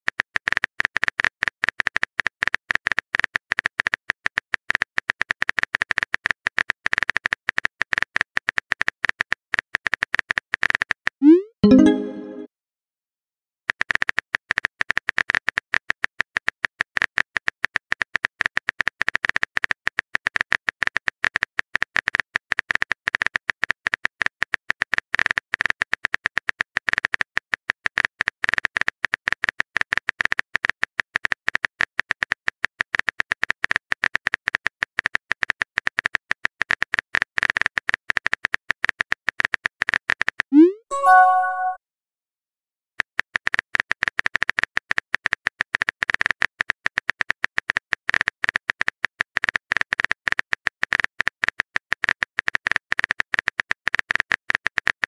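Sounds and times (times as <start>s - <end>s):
brief chime: 11.6s - 12.5s, 40.9s - 41.8s.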